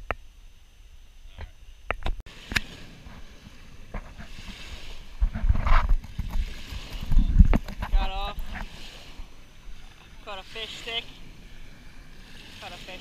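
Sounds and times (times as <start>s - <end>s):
wind buffeting microphone: 2.5s - 9.8s.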